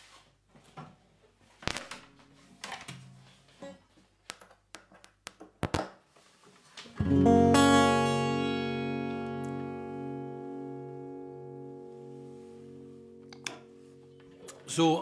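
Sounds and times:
acoustic guitar chord strummed: 0:07.0 - 0:15.0.

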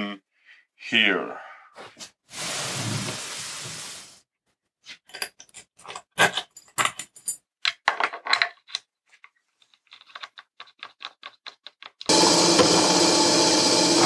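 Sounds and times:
metal screws clinking and rattling: 0:05.1 - 0:08.8, 0:09.6 - 0:12.1.

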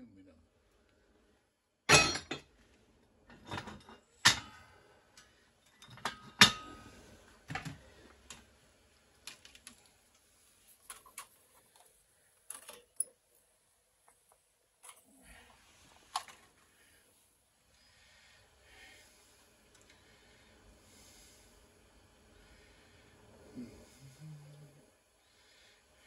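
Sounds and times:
metal pieces clanking on steel: 0:01.9 - 0:02.4.

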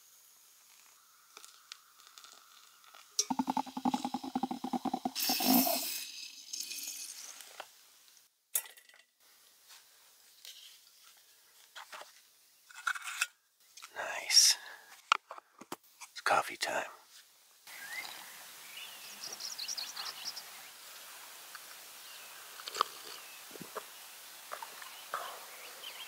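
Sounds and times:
hot water pouring: 0:00.7 - 0:07.6
plunger rattling squeak and hiss: 0:00.7 - 0:07.6.

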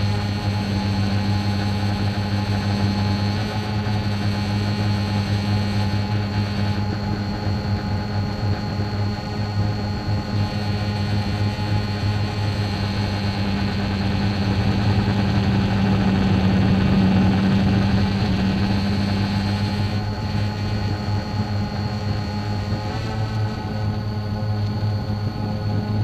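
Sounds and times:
drone propellers humming: 0:00.0 - 0:26.0.

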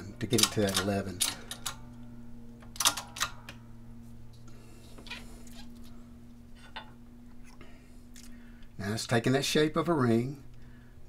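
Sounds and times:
steady low hum: 0:00.0 - 0:11.0
sharp metal clicks: 0:00.2 - 0:02.0, 0:02.6 - 0:03.6.

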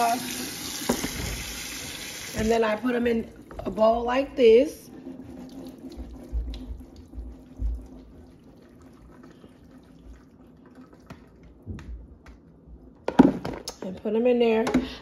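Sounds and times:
water dripping into sink: 0:05.9 - 0:08.0
colander knocks: 0:13.0 - 0:13.7.

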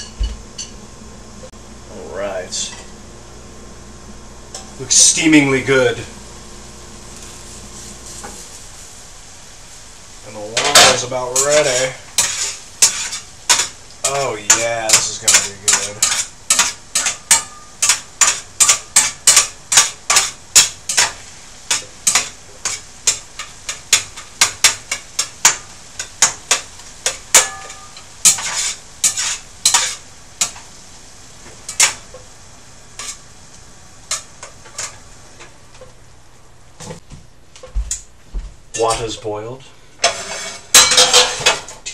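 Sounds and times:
spoon scraping a cooking pan: 0:10.5 - 0:30.7, 0:33.0 - 0:33.3, 0:34.0 - 0:35.0, 0:40.0 - 0:41.9.

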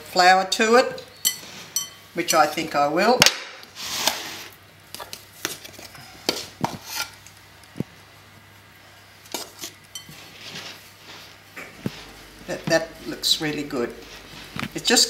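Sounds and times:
hands mixing dough in bowl: 0:09.1 - 0:15.0.

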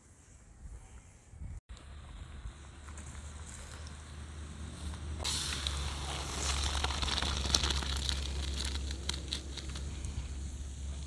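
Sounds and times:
rice and water pouring into bowl: 0:05.4 - 0:09.2.

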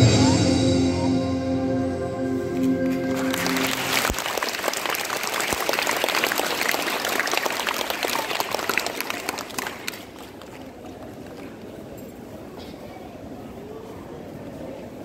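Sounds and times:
children clapping: 0:02.8 - 0:11.6.

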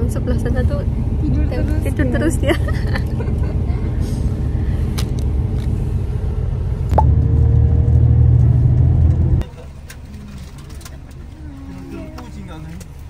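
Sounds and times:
bus engine rumble: 0:00.0 - 0:13.0
road noise: 0:00.0 - 0:13.0.

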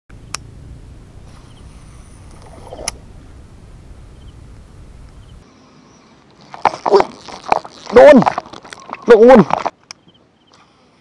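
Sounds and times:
wind rumble on microphone: 0:00.2 - 0:05.4.

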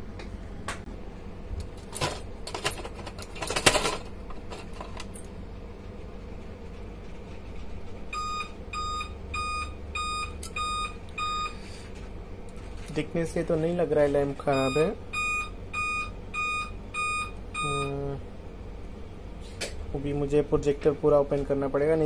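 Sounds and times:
short high beeps: 0:14.5 - 0:18.0.

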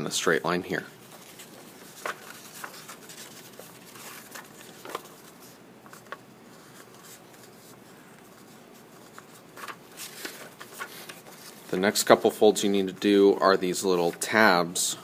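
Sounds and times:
paper rustling: 0:01.0 - 0:13.2
paper crinkles and taps: 0:01.1 - 0:05.3.

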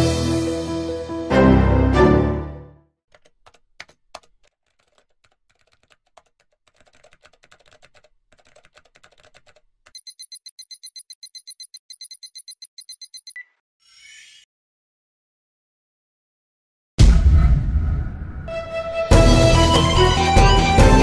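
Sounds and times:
keyboard typing: 0:03.1 - 0:13.4
rapid high-pitched electronic beeping: 0:09.9 - 0:13.4.

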